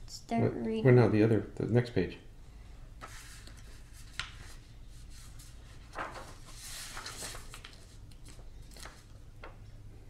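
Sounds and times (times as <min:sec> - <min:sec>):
low steady hum: 0:00.0 - 0:10.0
page turning: 0:03.0 - 0:09.6
paper rustling: 0:03.0 - 0:09.6.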